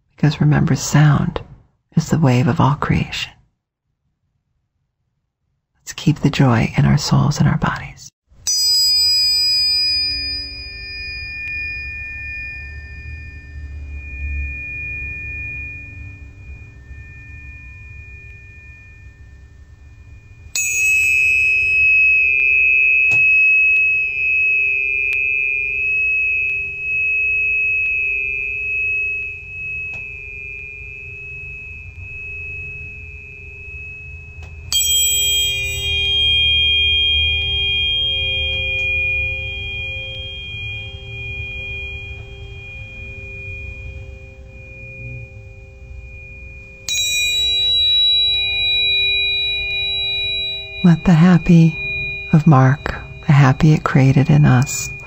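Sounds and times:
tuning fork ringing: 8.4s - 55.0s.

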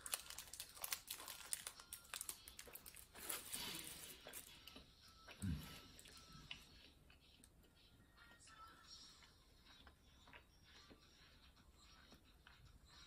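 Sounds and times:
plastic wrapper crinkling: 0.0s - 4.5s
chewing: 0.0s - 13.0s.

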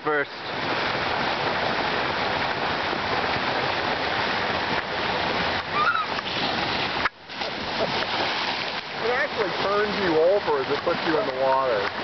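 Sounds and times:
water rushing down slide: 0.4s - 12.0s
brief high cry: 5.8s - 6.1s.

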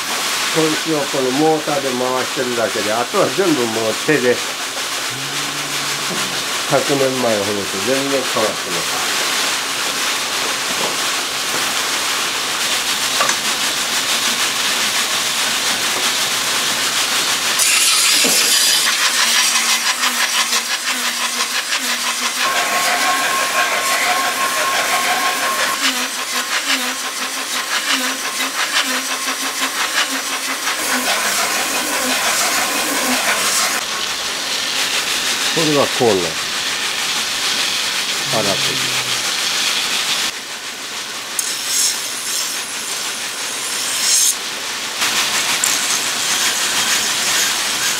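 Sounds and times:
knife grinding on whetstone: 4.4s - 7.1s, 17.5s - 33.9s, 36.0s - 40.3s, 41.4s - 44.4s, 45.0s - 47.9s
motor humming: 4.8s - 7.3s, 21.9s - 34.2s, 37.4s - 40.3s.

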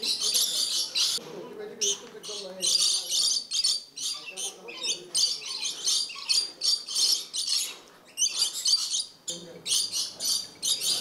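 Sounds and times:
parrots screeching: 2.3s - 11.0s.

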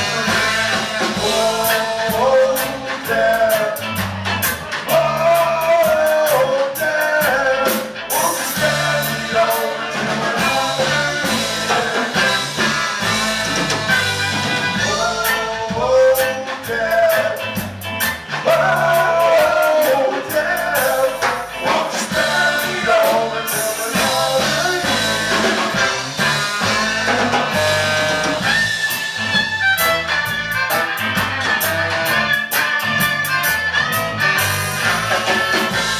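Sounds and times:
saxophone: 0.0s - 2.4s, 8.5s - 15.5s, 22.1s - 35.9s
drums: 0.0s - 35.9s
electric guitars: 0.0s - 35.9s.

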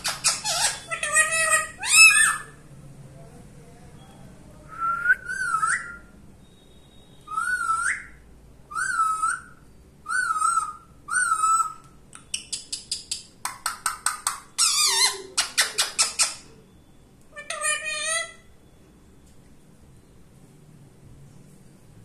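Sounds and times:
parakeet clicking chatter: 0.0s - 2.4s, 12.1s - 16.5s
parakeet warbling calls: 0.0s - 2.6s, 8.7s - 11.8s, 14.5s - 16.4s, 17.3s - 18.5s.

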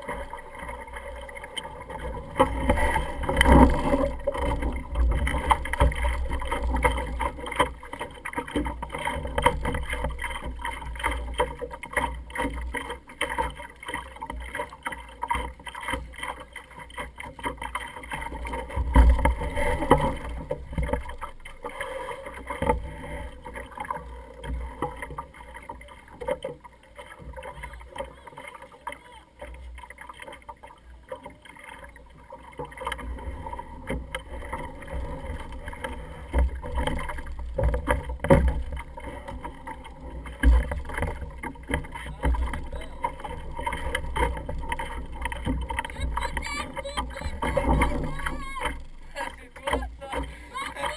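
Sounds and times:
water slapping against hull: 0.0s - 50.9s
boat knocks: 36.3s - 50.9s.

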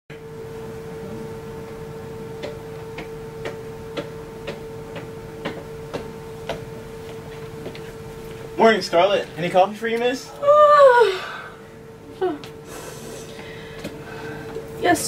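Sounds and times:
steady hum: 0.1s - 15.0s.

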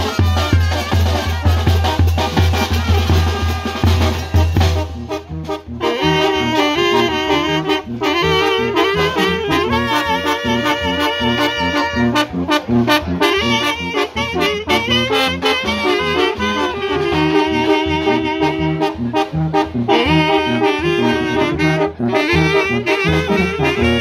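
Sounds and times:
brass band music: 0.0s - 24.0s.

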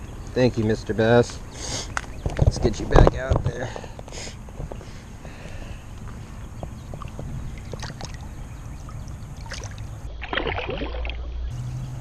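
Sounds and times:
water lapping and sloshing: 5.6s - 11.4s
fish splashing: 7.0s - 11.3s.

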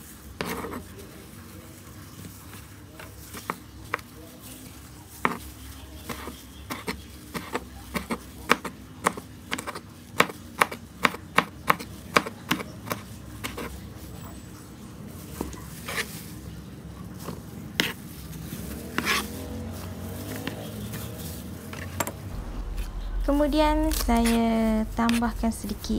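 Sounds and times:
knife chopping on plastic board: 5.2s - 5.4s, 6.0s - 13.7s, 17.8s - 18.0s, 18.8s - 19.4s.

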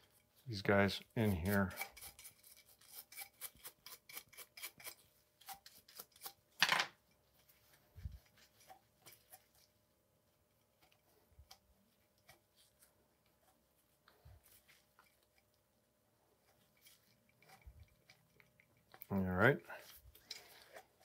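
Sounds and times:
brush scrubbing metal: 0.0s - 6.4s.

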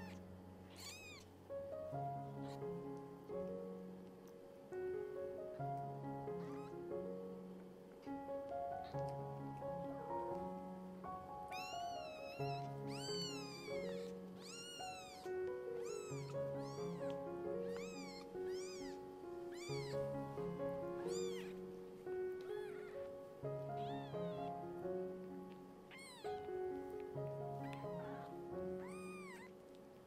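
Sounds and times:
kittens mewing: 0.0s - 1.4s, 6.4s - 6.8s, 11.5s - 21.7s, 22.3s - 24.6s, 25.9s - 26.8s, 27.6s - 29.7s
soft background music: 0.0s - 30.0s.

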